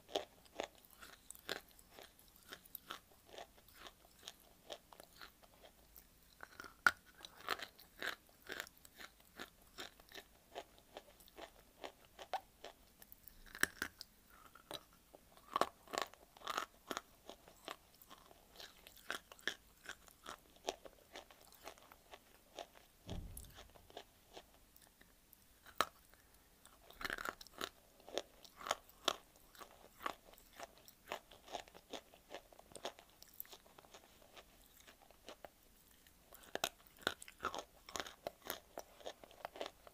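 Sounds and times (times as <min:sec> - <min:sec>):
clay crunching while chewed: 0:00.0 - 0:39.9
dull low thump: 0:23.1 - 0:24.0.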